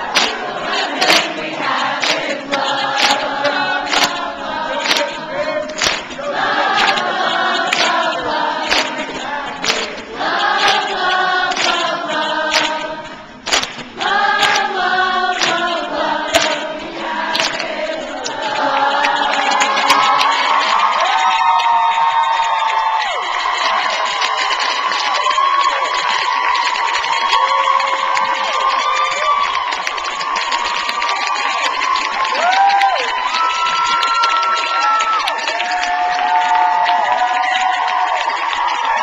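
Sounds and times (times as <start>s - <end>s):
sharp beats: 0.0s - 20.6s
crowd singing: 0.0s - 21.2s.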